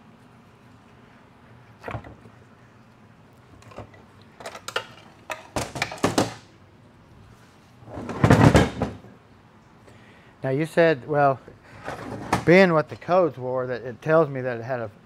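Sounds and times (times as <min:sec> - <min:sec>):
metal parts knocking and clattering: 0:03.6 - 0:06.4.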